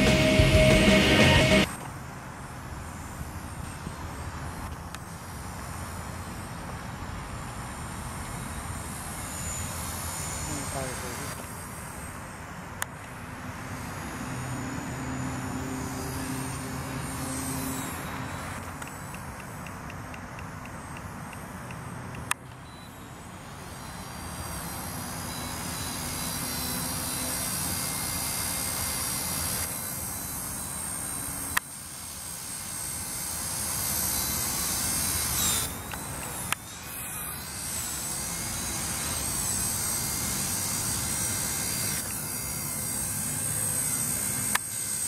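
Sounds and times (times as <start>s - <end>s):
rc helicopter rotor whining: 0.0s - 45.0s
sharp clicks: 18.6s - 22.7s.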